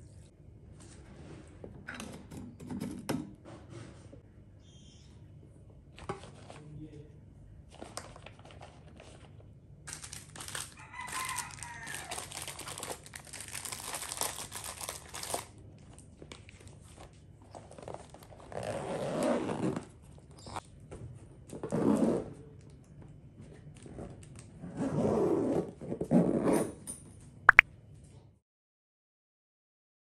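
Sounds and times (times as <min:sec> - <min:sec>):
plastic wrappers crinkling: 0:09.9 - 0:16.9.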